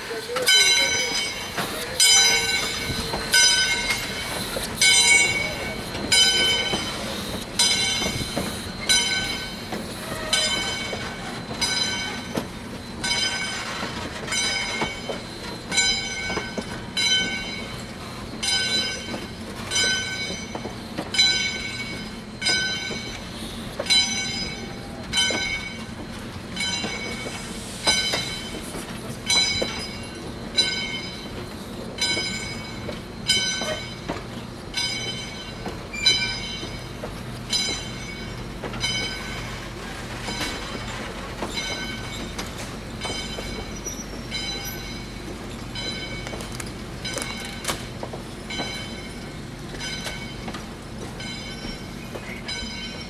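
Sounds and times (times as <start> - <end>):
train coaches rumbling: 0.0 - 53.0
train wheel clicks: 0.2 - 53.0
crossing warning bell ringing: 0.3 - 53.0.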